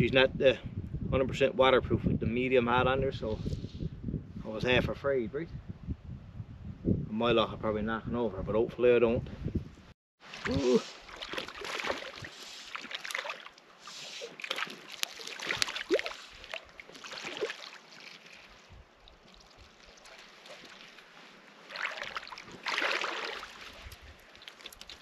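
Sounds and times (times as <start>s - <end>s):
fish splashing in water: 10.2s - 25.0s.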